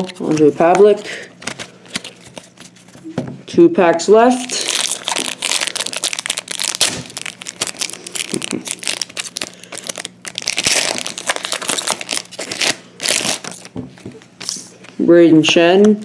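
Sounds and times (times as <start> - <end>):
wrapper crinkling and tearing: 4.4 - 13.7.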